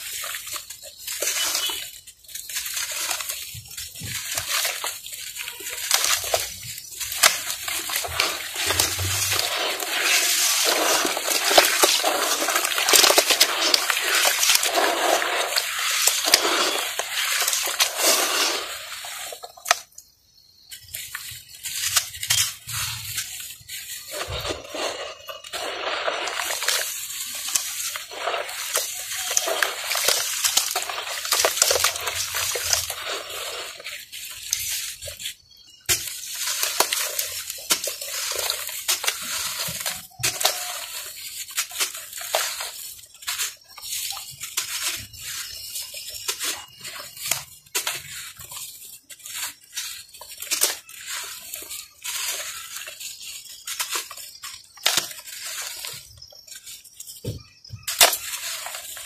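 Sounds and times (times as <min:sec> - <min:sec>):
water sloshing and splashing: 0:00.0 - 0:19.8, 0:23.2 - 0:35.2
wet dirt crackling: 0:00.0 - 0:59.0.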